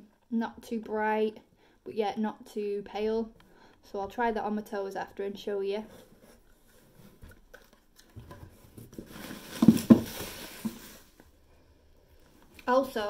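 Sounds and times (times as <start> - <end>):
bubble wrap crinkling: 6.2 - 11.2.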